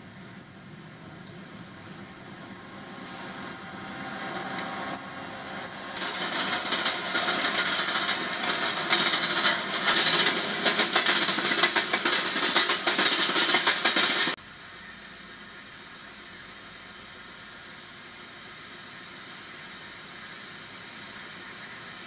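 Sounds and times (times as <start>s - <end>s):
steady low hiss: 0.0s - 4.3s, 14.4s - 22.0s
freight train wheels clicking: 1.8s - 14.4s.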